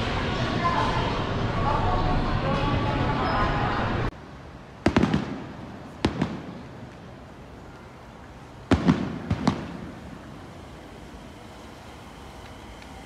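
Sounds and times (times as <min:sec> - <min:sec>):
fireworks bursting: 0:04.7 - 0:13.0.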